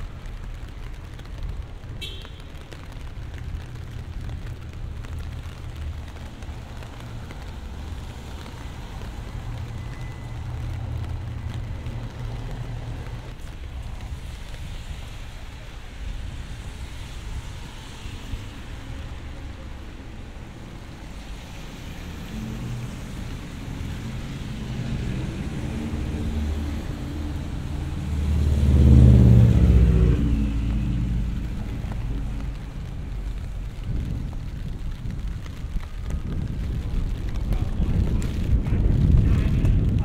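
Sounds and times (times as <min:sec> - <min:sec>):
rain on a street: 0:00.0 - 0:40.0
low rumble: 0:22.0 - 0:40.0.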